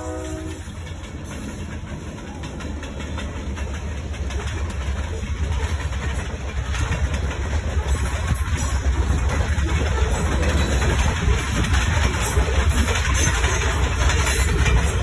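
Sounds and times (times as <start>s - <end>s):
diesel locomotive engines running: 0.0s - 15.0s
train cars rumbling over rails: 0.0s - 15.0s.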